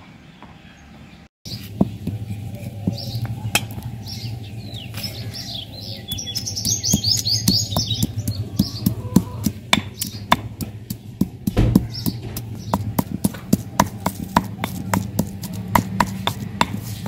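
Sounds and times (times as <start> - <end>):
birds chirping: 0.0 - 17.0
low steady hum: 1.5 - 17.0
stone pestle pounding in mortar: 6.1 - 17.0.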